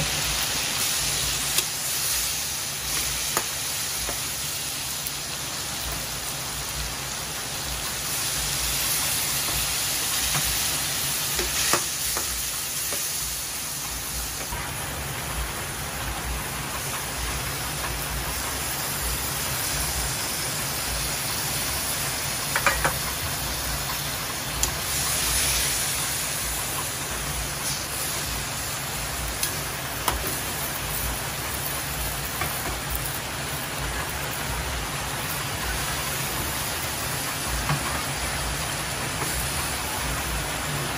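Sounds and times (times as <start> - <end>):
food sizzling in a wok: 0.0 - 40.9
metal turner clicking on pan: 22.5 - 23.0.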